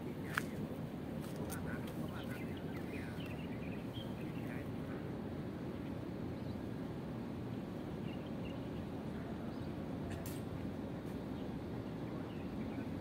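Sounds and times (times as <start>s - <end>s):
low rumbling harbour ambience: 0.0s - 13.0s.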